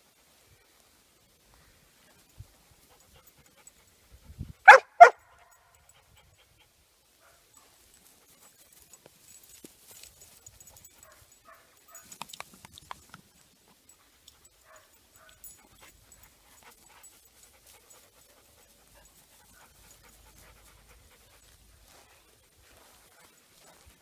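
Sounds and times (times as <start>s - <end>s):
dog panting: 13.9s - 24.0s.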